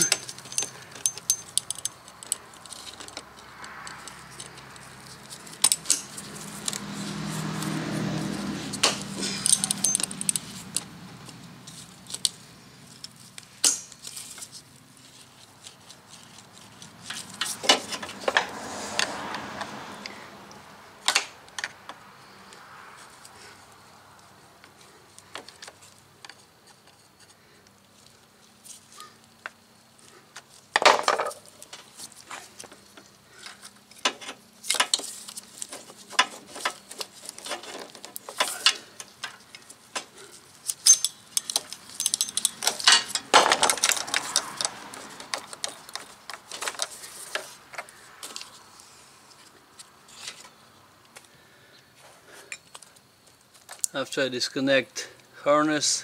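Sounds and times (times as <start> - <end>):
metal hose clamp clinking: 0.0 - 3.2, 8.8 - 10.8, 40.6 - 44.7.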